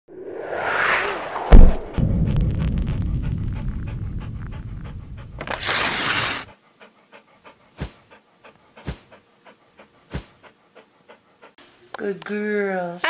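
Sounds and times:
loud whoosh: 0:00.1 - 0:05.5
dog panting: 0:03.0 - 0:11.6.

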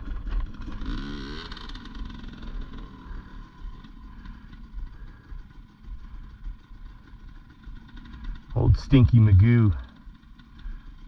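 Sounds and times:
dirt bike engines idling: 0:00.0 - 0:11.0.

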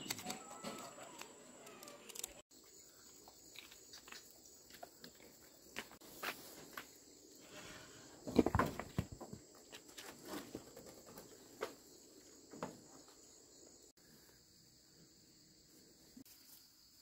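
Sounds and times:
insects chirring: 0:00.0 - 0:17.0.

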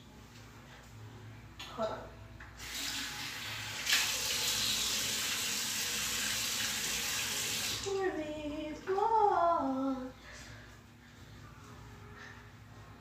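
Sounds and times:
tap water running into sink: 0:02.6 - 0:07.9.

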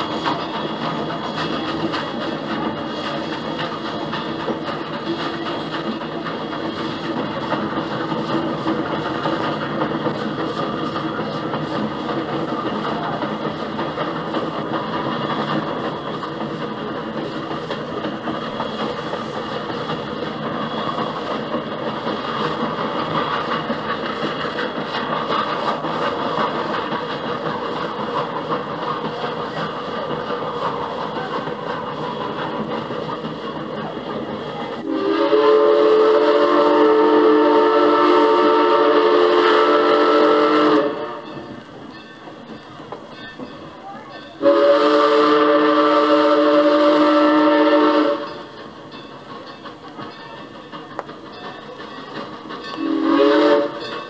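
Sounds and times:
steam locomotive whistle blast: 0:00.0 - 0:04.0, 0:18.4 - 0:21.4, 0:34.8 - 0:41.4, 0:44.4 - 0:48.5, 0:52.6 - 0:54.0
steam train running: 0:00.0 - 0:54.0.

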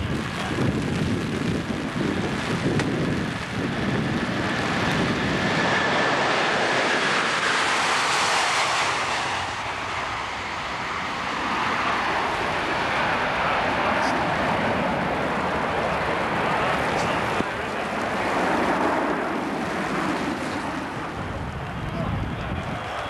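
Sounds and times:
jet engines roaring with whine: 0:00.0 - 0:23.0
wind buffeting microphone: 0:00.0 - 0:23.0.

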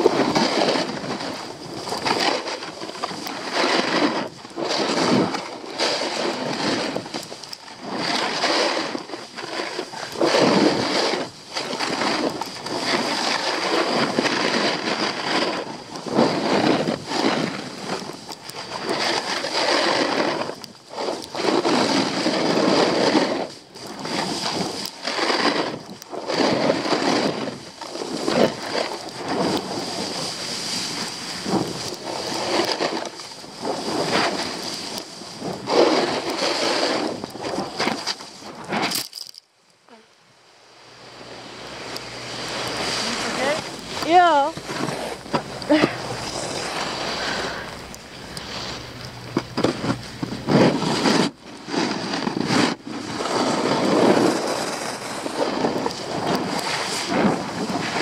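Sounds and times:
wind on microphone: 0:00.0 - 0:39.1, 0:40.8 - 0:58.0
skis scraping on snow: 0:00.0 - 0:40.0, 0:40.9 - 0:58.0.

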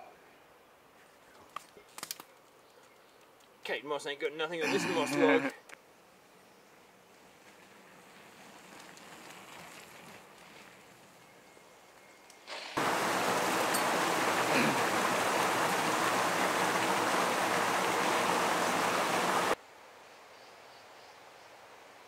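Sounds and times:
rushing water: 0:12.8 - 0:19.6.

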